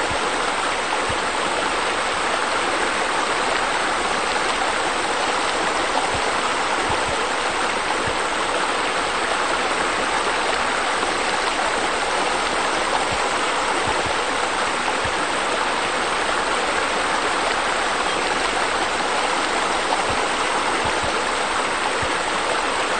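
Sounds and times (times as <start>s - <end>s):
water rushing and splashing: 0.0s - 22.9s.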